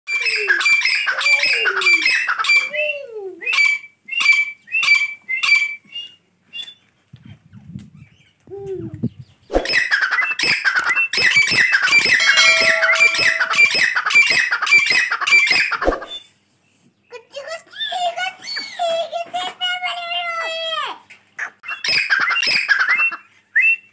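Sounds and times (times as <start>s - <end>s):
francolin calling repeated notes: 11.2s - 14.4s.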